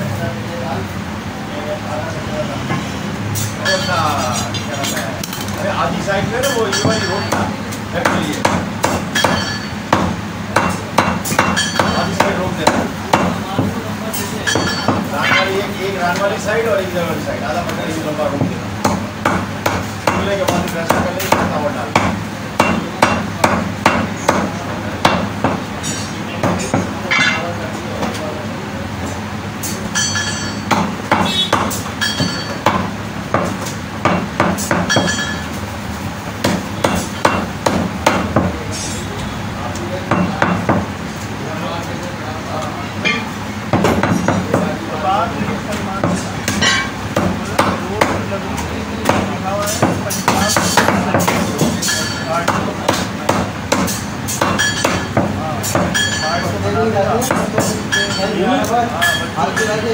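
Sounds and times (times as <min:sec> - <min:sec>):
meat cleaver chopping bone: 0:06.4 - 0:13.8, 0:18.3 - 0:27.0, 0:30.6 - 0:35.2, 0:36.4 - 0:38.6, 0:43.1 - 0:44.8, 0:46.0 - 0:56.0, 0:57.2 - 0:57.9.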